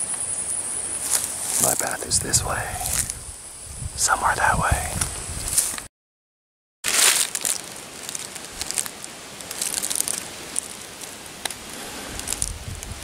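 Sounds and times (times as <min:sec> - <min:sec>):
footsteps crunching through dry leaves: 0:01.0 - 0:01.8, 0:06.9 - 0:12.8.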